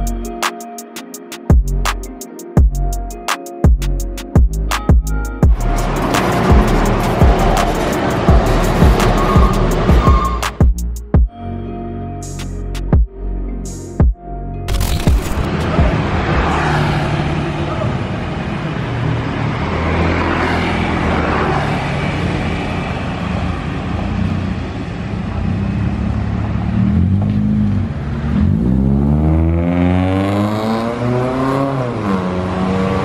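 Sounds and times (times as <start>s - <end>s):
car engine revving: 5.5s - 10.6s, 14.8s - 33.0s.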